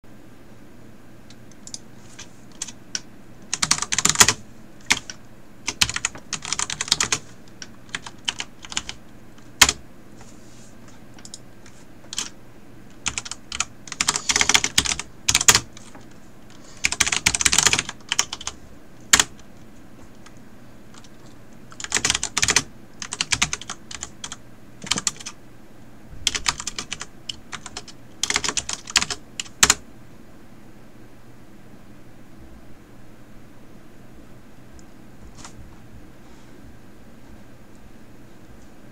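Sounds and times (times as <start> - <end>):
faint steady hum: 0.0 - 38.9
keyboard typing: 1.4 - 9.8, 11.1 - 19.4, 20.1 - 25.4, 26.2 - 29.8.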